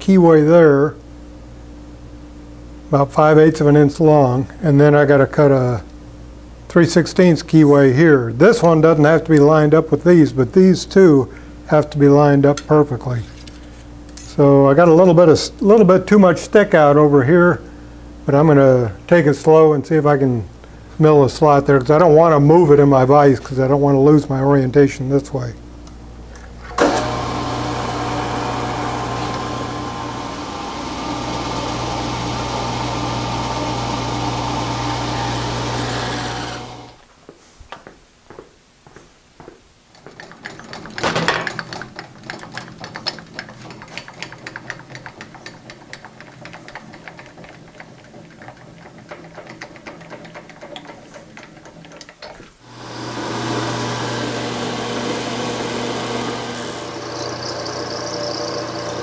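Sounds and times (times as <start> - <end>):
milling machine motor hum: 26.8 - 37.0, 40.2 - 59.0
fast irregular cutting ticks: 40.0 - 52.2.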